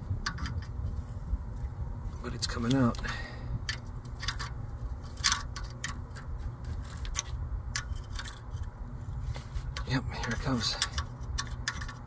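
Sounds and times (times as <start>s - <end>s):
low steady rumble: 0.0s - 12.0s
wrench metallic clicks: 2.6s - 6.2s, 9.7s - 12.0s.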